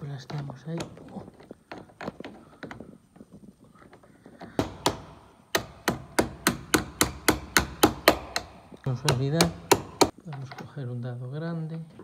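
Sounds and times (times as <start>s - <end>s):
hammer tapping metal: 4.6s - 10.2s.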